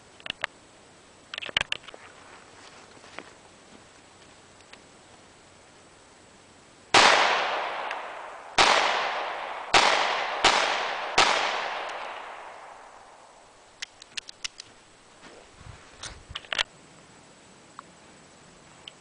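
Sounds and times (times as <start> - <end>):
faint clicks: 0.2 - 0.6, 4.6 - 4.9, 13.8 - 14.8, 17.7 - 17.9
handgun shots with echo: 7.0 - 12.8.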